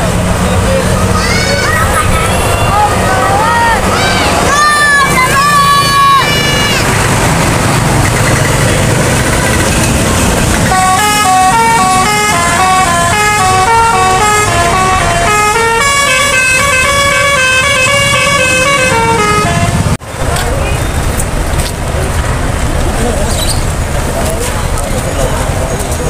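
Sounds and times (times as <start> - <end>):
bus engine and road noise: 0.0 - 26.0
musical air horn tune: 10.7 - 19.9.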